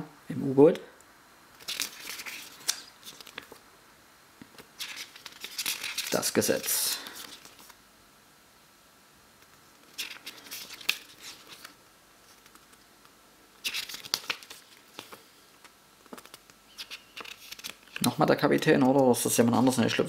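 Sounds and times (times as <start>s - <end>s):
paper pages turning: 1.6s - 3.6s, 4.4s - 7.8s, 9.8s - 12.8s, 13.6s - 20.0s.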